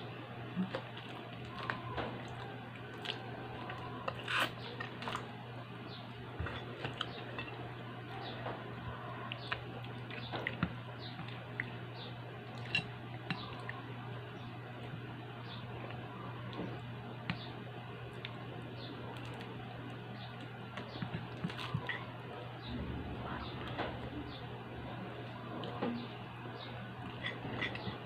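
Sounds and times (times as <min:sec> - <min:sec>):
steady low hum: 0:00.0 - 0:28.0
chewing and mouth noises: 0:00.6 - 0:05.3
plastic spoon scraping a plate: 0:27.1 - 0:28.0.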